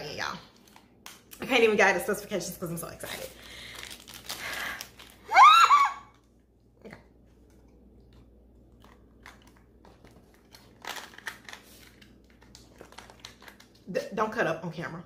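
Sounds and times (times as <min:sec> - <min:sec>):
plastic clicks and rustles: 0:07.4 - 0:13.9.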